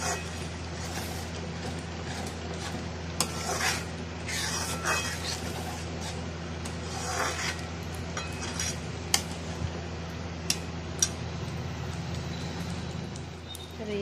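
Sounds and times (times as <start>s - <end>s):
metal spatula scraping a pan: 0.0s - 9.4s
steady low hum: 0.0s - 14.0s.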